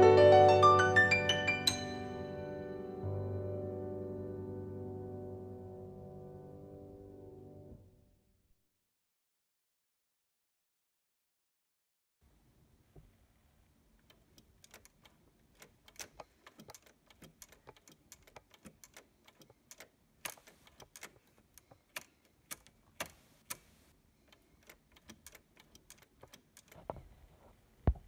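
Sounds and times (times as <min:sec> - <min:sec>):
small clicks and rattles: 0:14.0 - 0:27.6.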